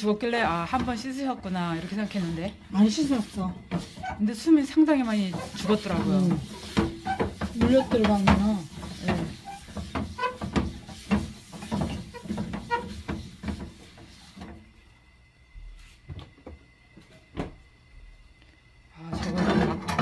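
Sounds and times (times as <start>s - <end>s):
paper towel rubbing frying pan: 0.4s - 14.5s.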